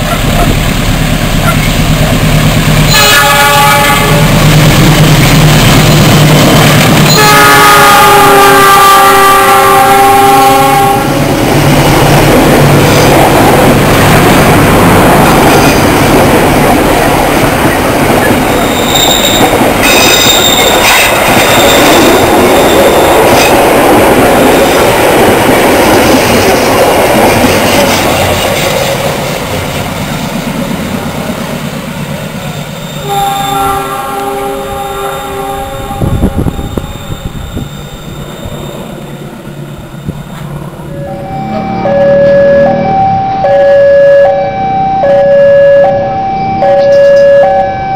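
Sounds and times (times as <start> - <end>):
locomotive engine rumble: 0.0 - 8.2
locomotive multi-tone horn: 2.9 - 4.4, 7.0 - 11.2, 33.0 - 37.4, 40.9 - 47.9
train wheels clattering over rail joints: 11.9 - 29.9
high wheel squeal: 18.5 - 23.4, 36.7 - 39.1.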